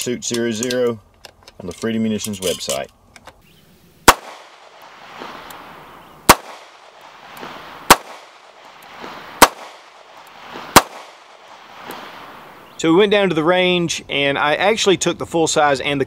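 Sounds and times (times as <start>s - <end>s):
pistol shots with echo: 4.0s - 4.8s, 6.3s - 7.0s, 7.9s - 8.5s, 9.4s - 10.1s, 10.7s - 11.4s.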